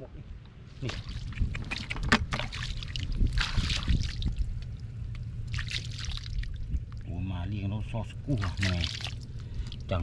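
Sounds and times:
low rumble: 0:00.8 - 0:10.0
shallow water splashing: 0:00.9 - 0:07.1, 0:08.3 - 0:10.0.

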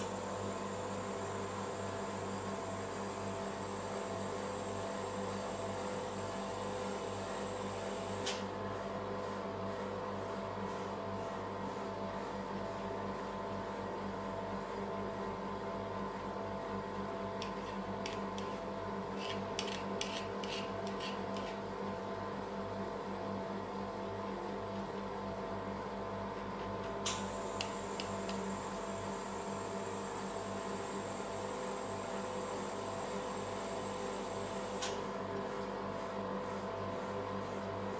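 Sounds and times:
refrigeration unit humming: 0:00.0 - 0:37.9
knife scraping: 0:17.4 - 0:21.7.

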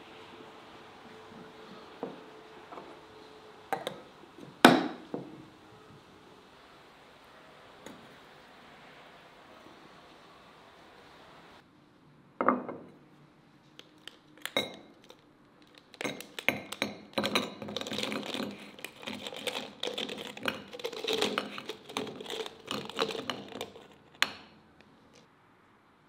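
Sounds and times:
jelly cubes clattering onto platter: 0:15.8 - 0:24.4.

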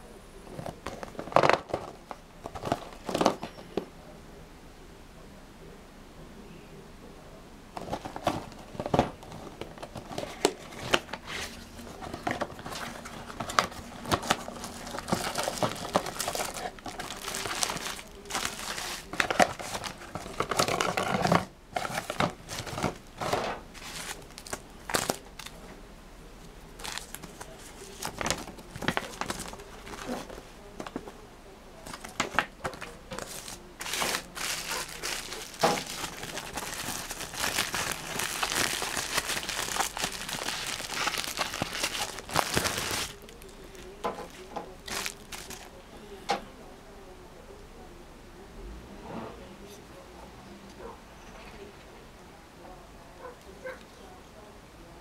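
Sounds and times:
paper and bubble wrap crinkling: 0:00.5 - 0:03.6, 0:07.8 - 0:25.6, 0:26.8 - 0:31.2, 0:31.8 - 0:45.8.

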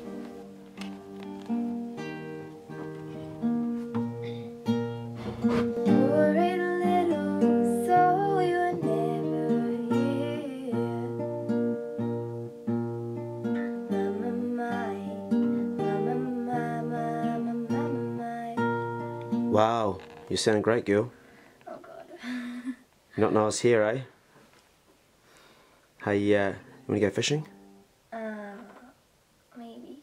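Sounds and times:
acoustic guitar: 0:00.0 - 0:24.6, 0:25.4 - 0:29.0
girl singing: 0:04.2 - 0:11.4, 0:13.4 - 0:19.3.

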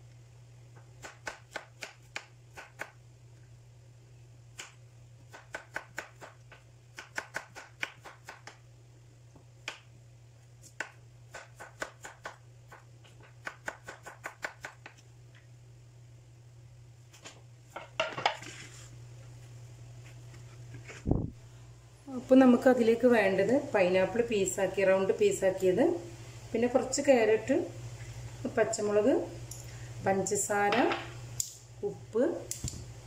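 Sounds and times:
knife chopping on wooden board: 0:10.6 - 0:15.0.

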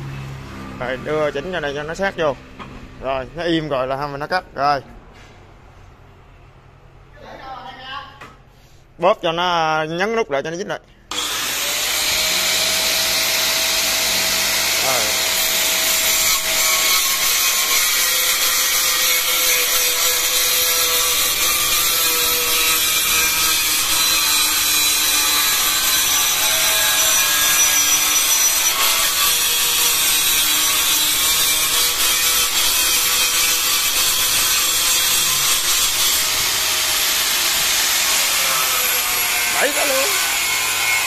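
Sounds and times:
angle grinder motor whine: 0:11.1 - 0:17.6.

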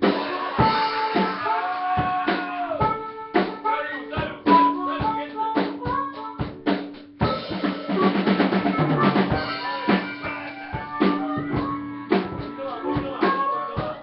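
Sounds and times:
rapid drum hits: 0:00.0 - 0:03.6, 0:06.5 - 0:13.9
live rock band playing: 0:00.0 - 0:14.0.

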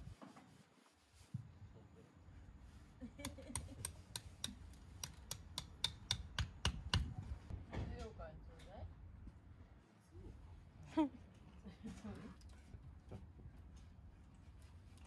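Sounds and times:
low outdoor background noise: 0:00.0 - 0:15.0.

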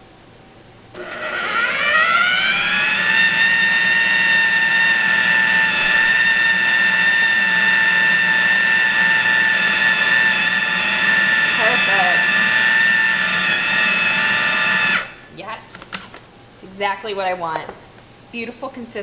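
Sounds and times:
food processor motor whining: 0:01.0 - 0:15.2.

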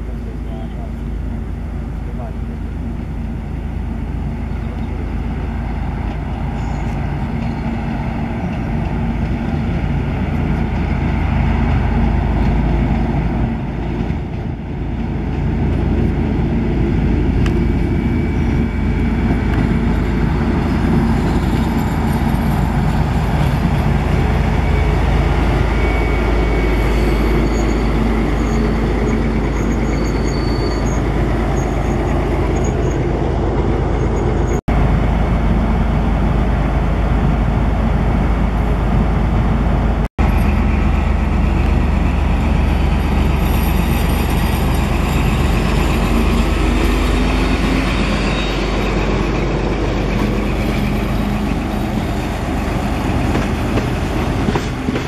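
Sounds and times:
diesel locomotive engine hum: 0:00.0 - 0:55.0
thin high brake squeals: 0:06.5 - 0:07.7, 0:25.6 - 0:33.1, 0:43.3 - 0:49.2.

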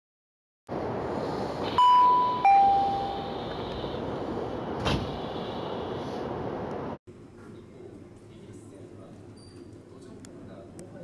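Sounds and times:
two-note elevator chime: 0:01.8 - 0:03.2.

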